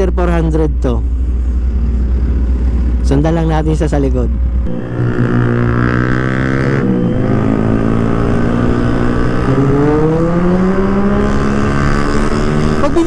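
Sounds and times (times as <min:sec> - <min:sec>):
motorcycle engine accelerating: 0:04.6 - 0:13.0.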